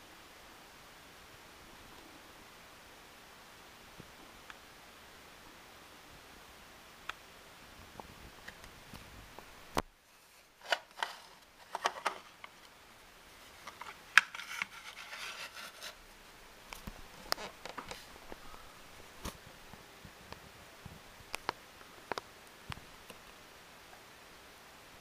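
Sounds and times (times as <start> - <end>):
handling clicks and rubs: 10.3 - 12.8, 13.5 - 16.0.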